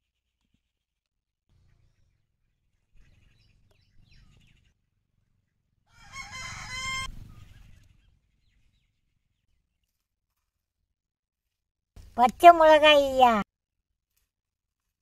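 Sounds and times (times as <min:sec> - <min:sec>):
rooster crowing: 0:05.9 - 0:07.1.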